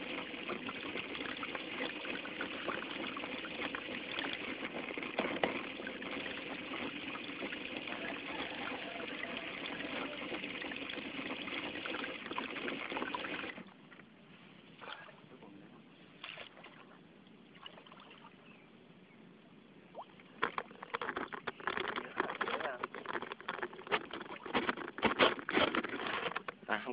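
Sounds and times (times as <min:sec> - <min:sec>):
water splashing along boat hull: 0:00.0 - 0:14.0, 0:19.9 - 0:26.6.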